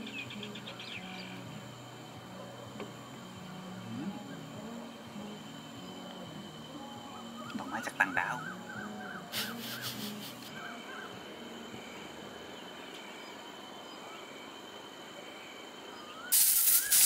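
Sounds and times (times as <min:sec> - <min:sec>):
faint voices: 0:00.0 - 0:16.2
crickets trilling: 0:00.0 - 0:17.0
insect chirps: 0:00.0 - 0:17.0.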